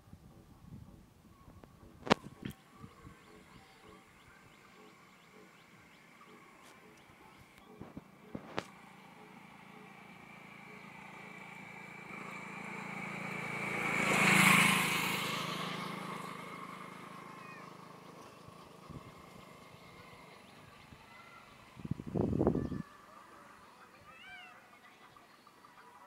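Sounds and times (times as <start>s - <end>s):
vehicle passing by: 2.8s - 22.6s.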